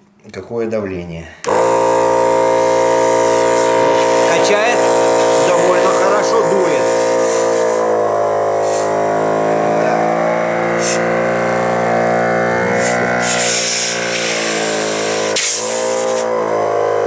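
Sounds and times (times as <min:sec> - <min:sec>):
air compressor motor hum: 0:01.4 - 0:17.0
short air hisses: 0:02.6 - 0:05.6, 0:06.8 - 0:07.9, 0:08.6 - 0:09.0, 0:10.8 - 0:11.0, 0:12.7 - 0:16.3.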